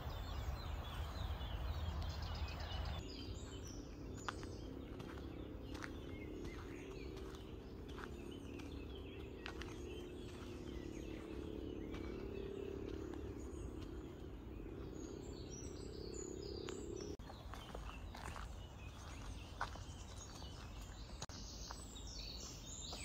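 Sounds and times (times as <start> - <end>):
low background hum: 0.0 - 23.0
small birds chirping: 0.0 - 23.0.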